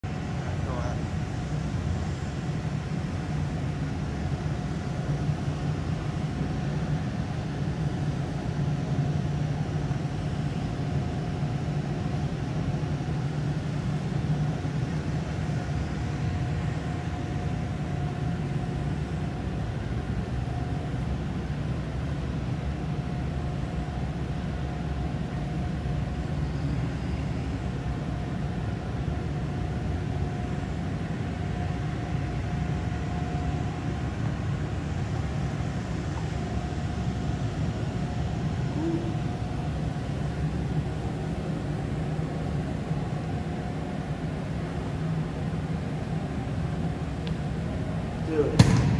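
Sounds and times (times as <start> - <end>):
faint constant tone: 0.0 - 48.9
low hum and rush: 0.0 - 48.9.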